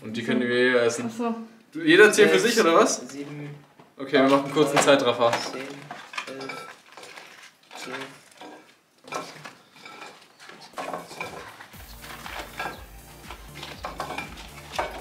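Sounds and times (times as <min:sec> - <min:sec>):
food handling clatter: 0:04.2 - 0:15.0.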